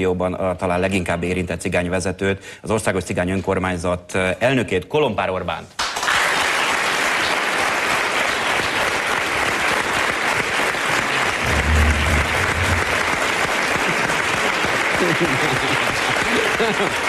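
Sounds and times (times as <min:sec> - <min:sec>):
audience applauding: 0:05.8 - 0:17.0
short low rumble: 0:11.4 - 0:13.2.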